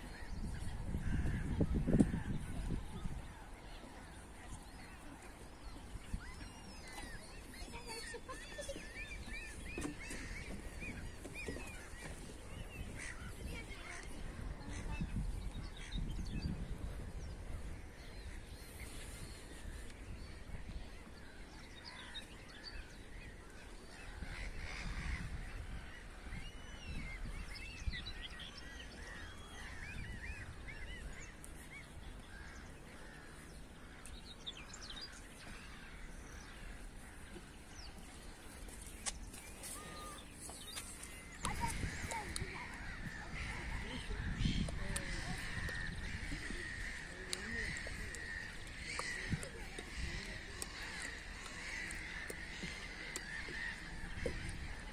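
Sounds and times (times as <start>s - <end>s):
bird calls chirps and honks: 5.7s - 16.5s, 21.7s - 54.9s.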